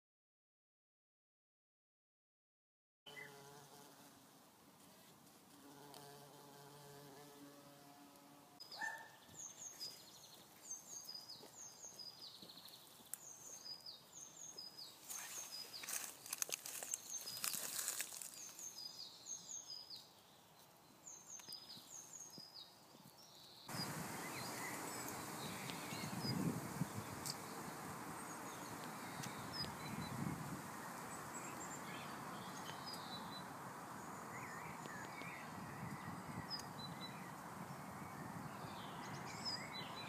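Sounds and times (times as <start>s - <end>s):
bumblebee buzzing: 3.1s - 4.2s, 5.5s - 8.6s, 23.7s - 32.6s
rustling crackle: 15.0s - 18.8s
bird singing high falling notes: 23.7s - 30.2s.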